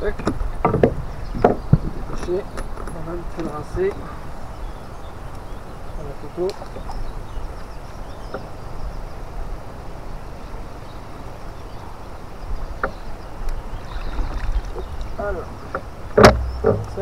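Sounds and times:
faint knocks: 15.7s - 17.0s.

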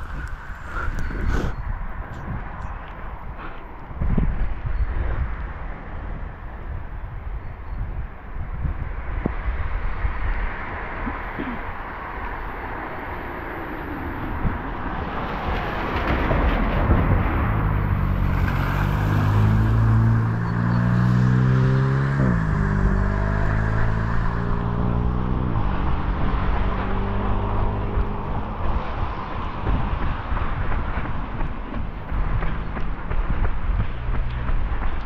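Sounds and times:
vehicle engine hum: 0.0s - 35.0s.

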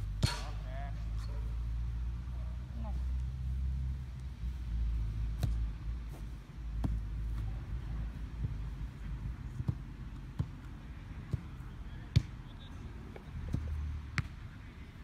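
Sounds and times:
foot kicking football: 5.3s - 12.4s.

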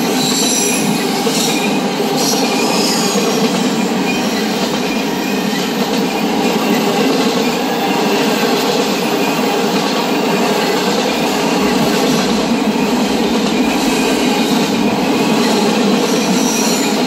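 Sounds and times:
freight train wheels rumbling: 0.0s - 17.0s.

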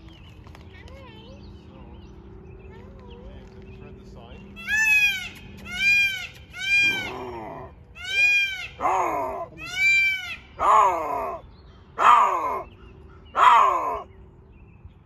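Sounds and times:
lynx mewing calls: 4.6s - 11.4s, 12.0s - 12.7s, 13.3s - 14.1s
lynx yowls: 4.6s - 11.4s, 12.0s - 12.7s, 13.3s - 14.1s.

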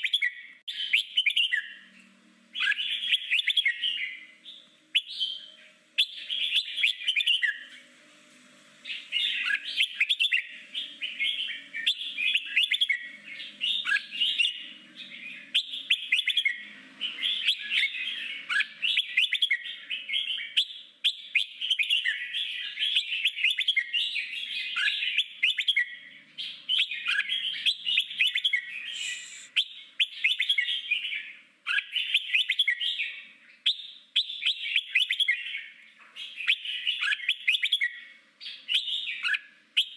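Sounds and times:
bird chattering song: 0.0s - 7.8s, 8.8s - 39.9s.

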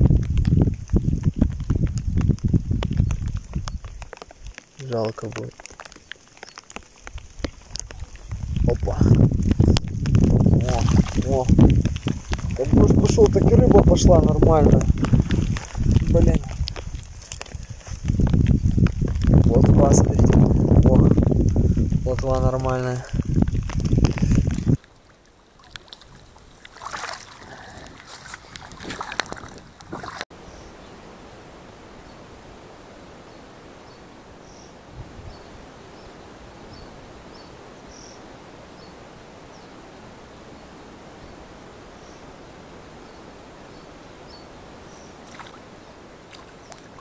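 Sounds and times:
rustling: 0.0s - 19.6s
rain falling on water: 0.0s - 47.0s.

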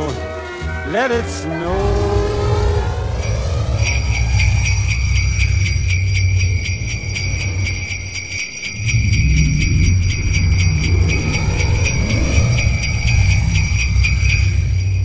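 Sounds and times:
low rumble: 1.7s - 15.0s
sleigh bells jingling: 3.2s - 15.0s.

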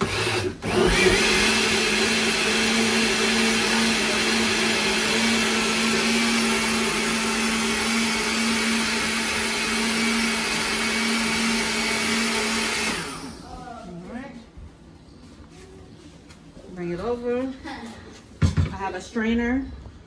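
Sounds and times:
blender motor running: 0.0s - 13.5s.

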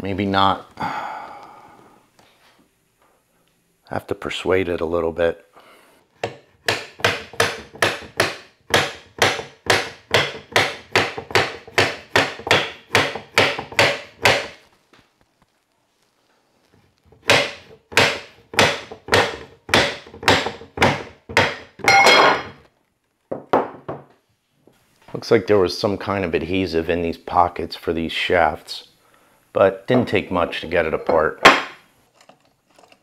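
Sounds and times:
metallic ring: 21.9s - 22.6s
mallet striking metal bracket: 31.4s - 31.8s.

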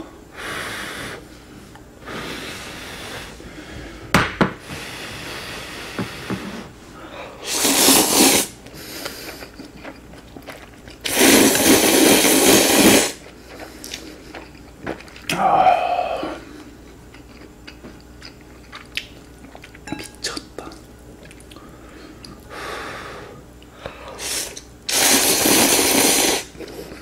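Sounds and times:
slurping noodles: 7.4s - 9.6s, 11.0s - 13.2s, 24.2s - 27.0s.

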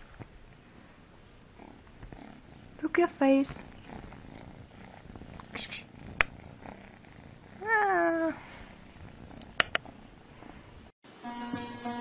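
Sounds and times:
cat purring: 0.0s - 10.9s
sharp clicks: 9.4s - 9.8s.

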